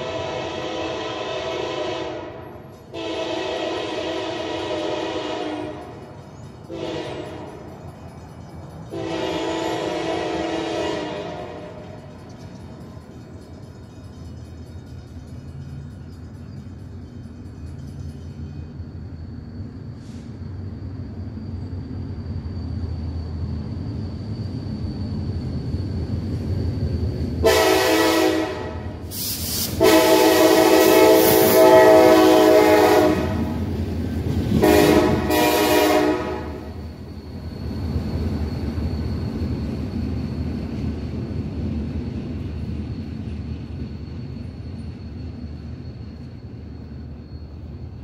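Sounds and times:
locomotive air horn blasts: 0.0 - 5.9, 6.7 - 7.5, 8.9 - 11.8, 27.4 - 29.0, 29.6 - 33.6, 34.6 - 36.8
train rumbling past: 0.0 - 48.0.

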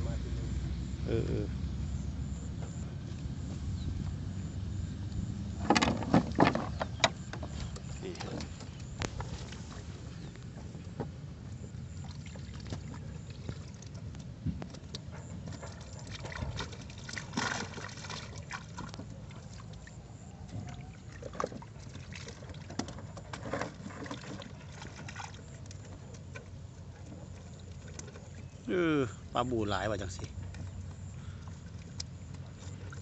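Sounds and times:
steady low rumble: 0.0 - 5.8
water splashing and dripping: 11.9 - 26.4.

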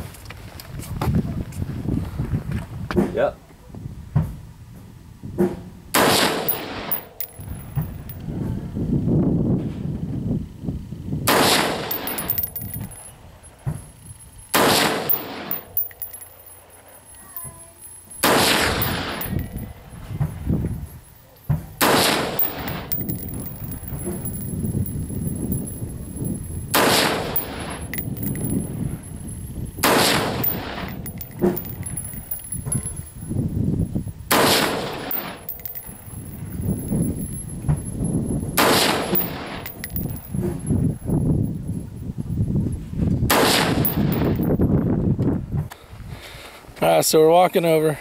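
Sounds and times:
rifle shots echoing: 14.5 - 15.8, 18.2 - 19.6, 21.8 - 23.4, 26.8 - 28.5, 29.8 - 31.7, 34.3 - 35.5, 38.6 - 39.7.

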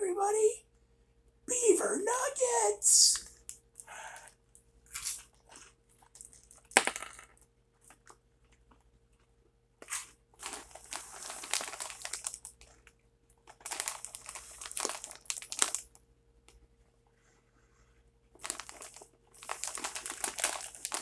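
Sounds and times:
plastic bag crinkling: 10.4 - 16.0, 18.4 - 21.0.

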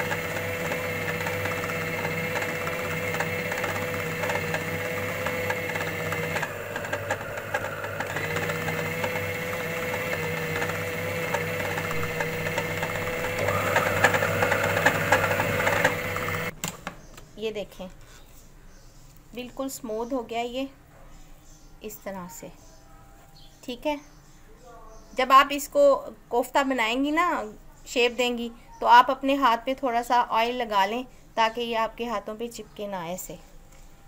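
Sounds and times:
food chopper motor running: 0.0 - 16.6.

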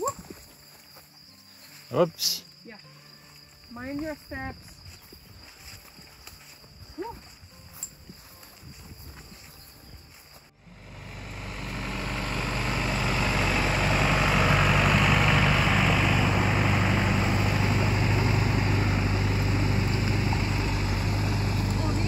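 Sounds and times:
tractor diesel engine running: 9.8 - 22.0.

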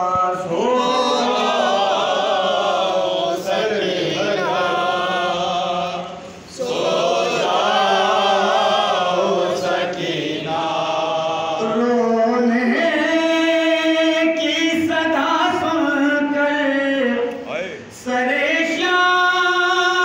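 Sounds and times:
man singing a lament: 11.6 - 20.0.

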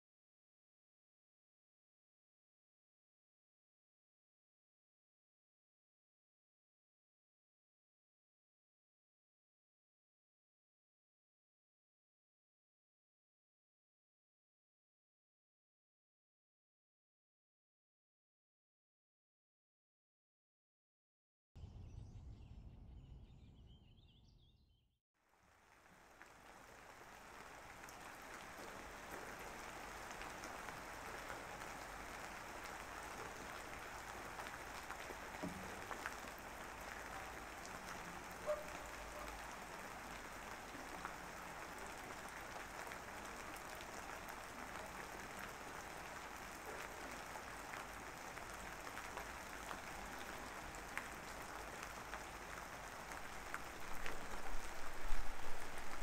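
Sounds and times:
steady rain: 25.2 - 56.0
faint raindrop ticks: 25.5 - 56.0.

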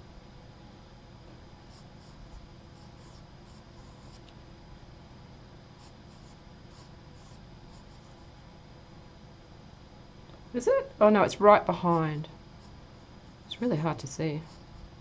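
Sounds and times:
low room hum: 0.0 - 15.0
pencil scratching on paper: 1.7 - 4.2, 14.2 - 15.0.

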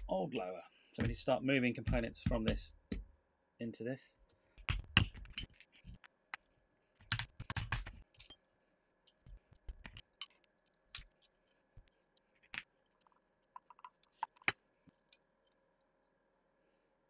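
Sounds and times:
small metal parts clicking and knocking: 12.4 - 15.6.

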